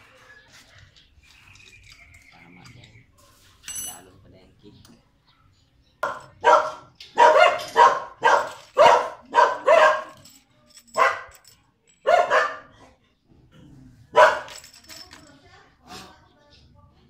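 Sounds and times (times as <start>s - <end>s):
dog barking: 6.0s - 10.2s, 11.0s - 11.4s, 12.0s - 13.0s, 14.1s - 14.6s.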